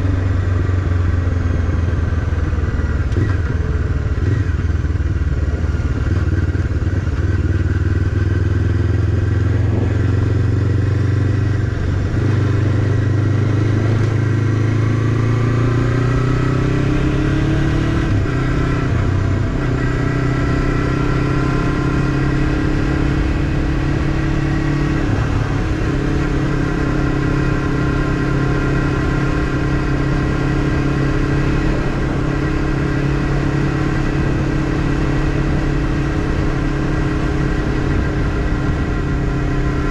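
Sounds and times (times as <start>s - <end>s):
motorcycle engine accelerating: 0.0s - 39.9s.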